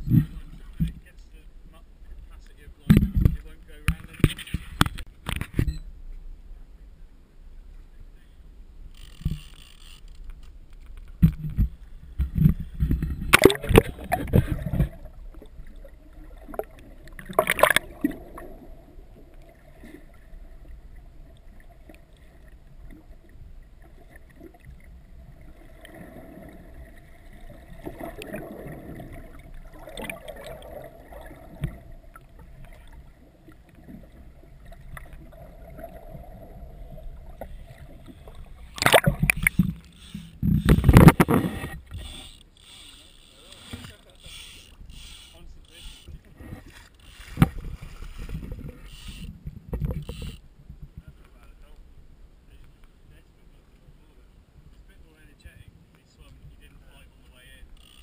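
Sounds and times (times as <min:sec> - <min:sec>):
water splashes and knocks: 0:02.8 - 0:05.7, 0:10.3 - 0:18.5, 0:25.6 - 0:36.0, 0:36.9 - 0:42.1, 0:45.4 - 0:51.5
muffled underwater noise: 0:12.2 - 0:24.3, 0:25.3 - 0:50.4.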